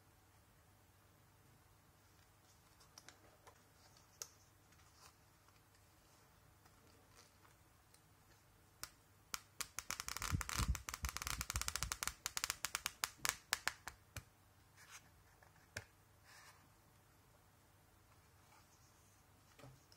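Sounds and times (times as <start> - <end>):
flipbook pages flicking: 8.8 - 14.0.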